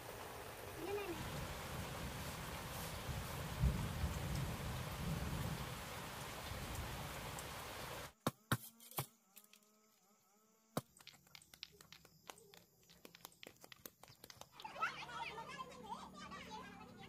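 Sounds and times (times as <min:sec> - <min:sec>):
steady rain hissing: 0:00.0 - 0:08.2.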